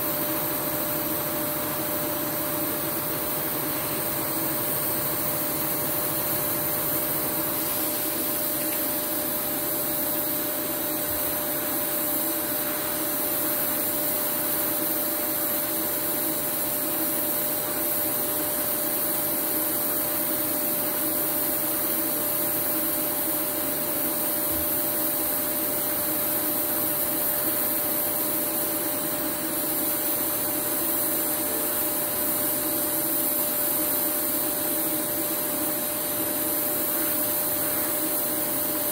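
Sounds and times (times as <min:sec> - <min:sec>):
steady hum tone: 0:00.0 - 0:38.9
welding arc hiss: 0:00.0 - 0:38.9.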